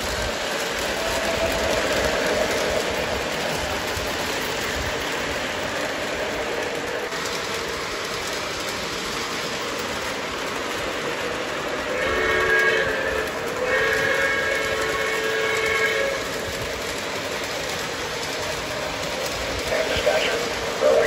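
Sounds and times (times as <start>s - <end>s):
model trains rumbling on track: 0.0s - 21.0s
model train whistle chord: 12.0s - 16.2s.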